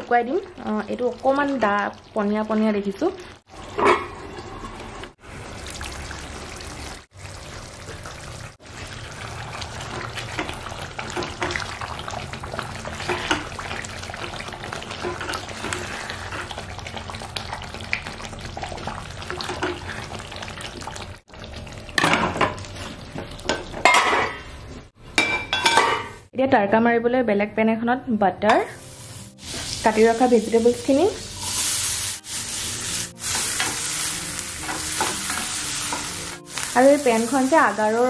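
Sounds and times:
curry simmering and bubbling: 3.1 - 22.0
steel lid and pan clanking: 3.7 - 4.2, 23.5 - 24.5, 25.2 - 26.2.

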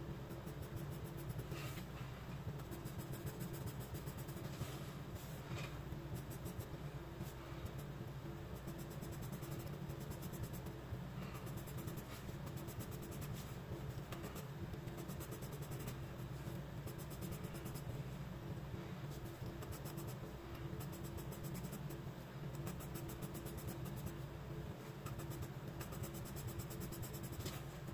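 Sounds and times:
pencil scratching on paper: 2.6 - 5.3, 11.3 - 17.9, 20.8 - 22.0, 22.6 - 24.2, 25.0 - 27.7.

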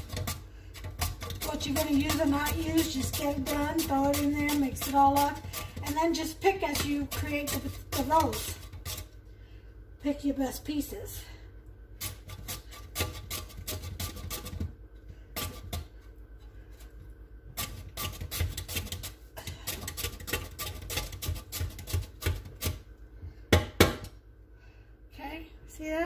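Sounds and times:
potato scraping on grater: 0.0 - 9.2, 12.0 - 14.7, 15.4 - 15.9, 17.6 - 22.8.

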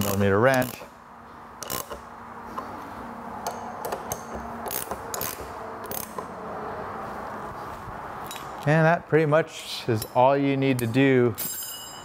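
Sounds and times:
wrench clicking on nut: 0.0 - 0.9, 1.6 - 2.7, 3.4 - 6.3.

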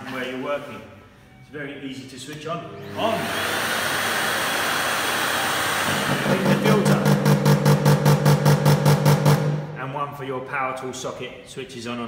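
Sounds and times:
vacuum cleaner motor running: 2.9 - 8.4.

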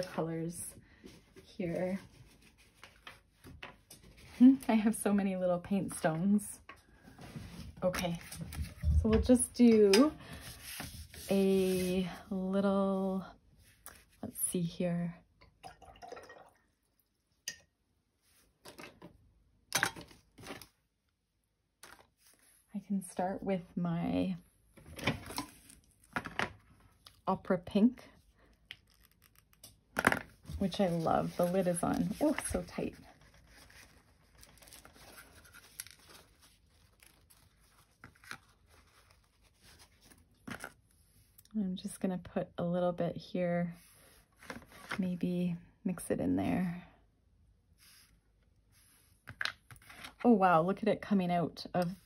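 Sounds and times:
rustling and knocking of supplies: 6.6 - 11.3
paper towel rustling: 10.3 - 12.2, 30.5 - 40.2.

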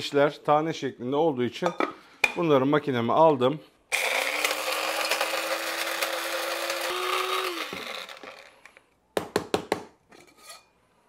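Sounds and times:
electric spice grinder running: 3.9 - 8.8.

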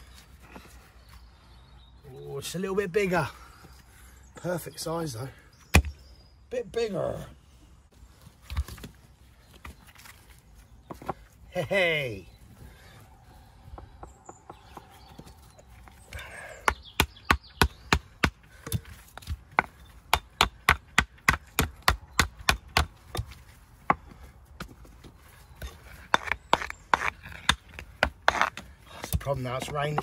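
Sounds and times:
stones clacking together: 25.6 - 30.0.

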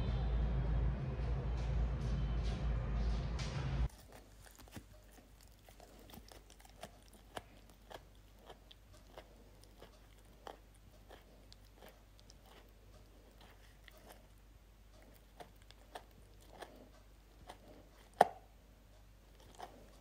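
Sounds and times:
loud noisy sound: 0.0 - 3.9
dog chewing: 3.9 - 20.0.

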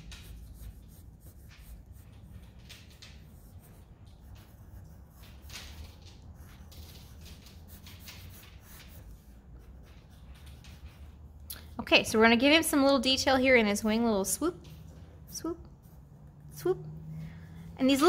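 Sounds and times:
pencil scratching on paper: 0.0 - 11.8.

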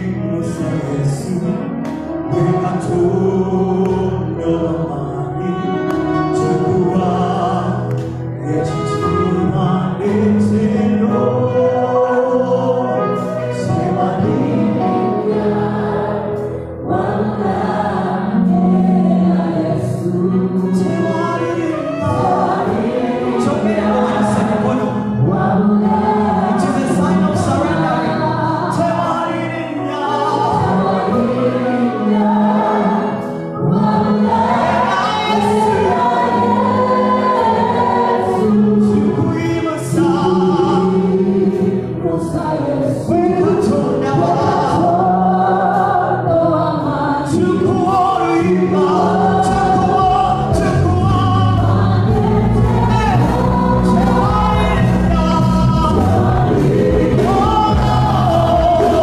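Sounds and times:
man singing lead: 0.0 - 15.2, 19.8 - 32.4, 38.4 - 45.4, 47.3 - 59.0
choir backing vocals: 0.0 - 59.0
keyboards: 0.0 - 59.0
drums: 49.7 - 59.0.

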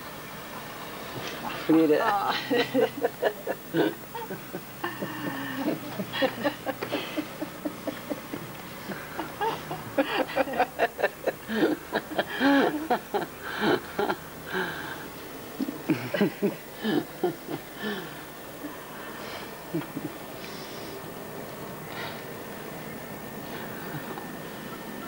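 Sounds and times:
people talking: 0.6 - 14.0
people laughing: 1.4 - 21.1, 23.4 - 25.0.

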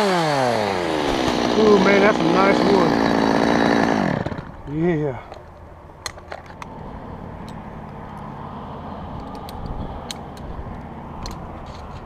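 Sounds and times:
chainsaw idling: 0.0 - 4.7.

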